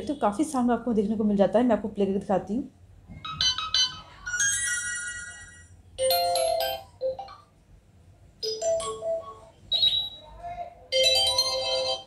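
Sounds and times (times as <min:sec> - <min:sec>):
phone notification chimes: 0:03.2 - 0:07.5, 0:08.4 - 0:10.2.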